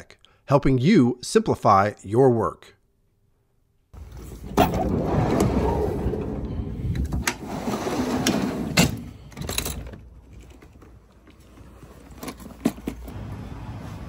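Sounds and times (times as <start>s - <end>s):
van sliding door opening: 4.0s - 10.1s, 11.6s - 14.0s.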